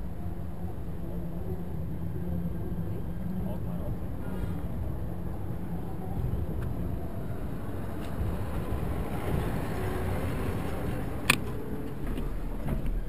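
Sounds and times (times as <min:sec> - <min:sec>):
street traffic rumble: 0:00.0 - 0:13.0
truck towing trailer passing: 0:03.9 - 0:13.0.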